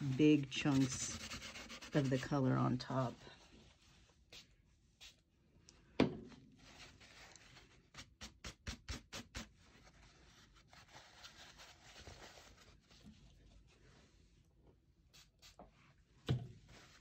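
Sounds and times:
cloth rubbing on cardstock: 0.0s - 2.5s.

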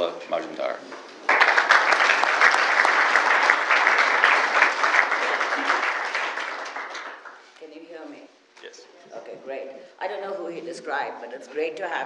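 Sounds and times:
audience applauding: 1.2s - 7.5s.

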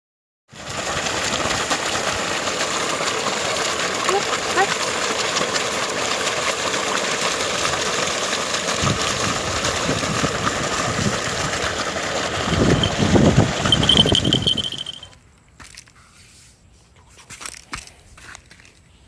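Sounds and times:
water gushing into a pond: 0.5s - 15.1s
water splashing: 0.5s - 15.8s
pump engine running: 0.5s - 15.9s.

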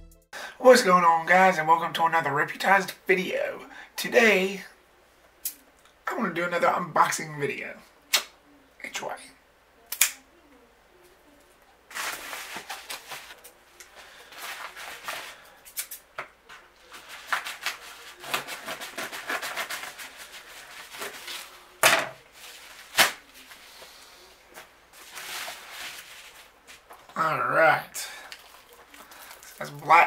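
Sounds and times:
sharp snaps: 8.1s - 8.4s, 9.9s - 10.3s
paper crackling and rustling: 11.2s - 15.6s, 16.4s - 27.2s, 28.2s - 30.0s
padded envelope being torn open: 16.9s - 21.6s, 22.4s - 23.6s.

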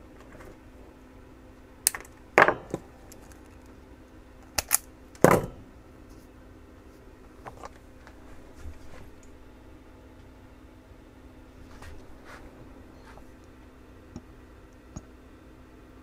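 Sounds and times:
side cutters snipping wire: 4.4s - 4.9s.

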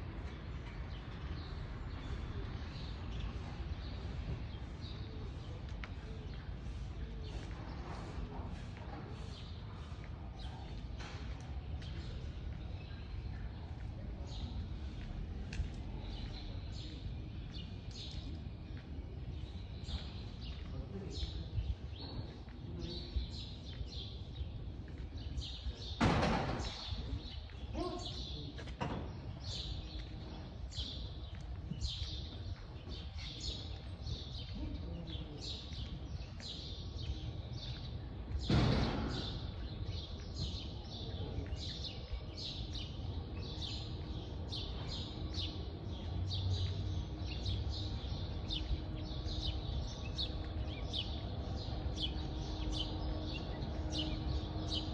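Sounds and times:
birds chirping: 26.6s - 54.9s.

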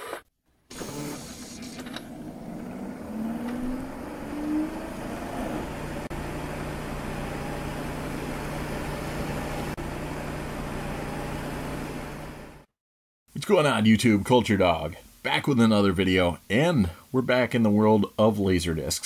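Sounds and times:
disc player whirring: 0.0s - 12.6s
low hum: 1.3s - 12.6s.

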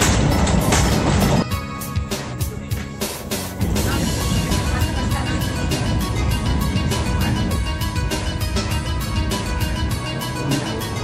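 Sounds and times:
background music with steady beat: 0.0s - 11.0s
low rumbling noise: 3.6s - 10.2s.

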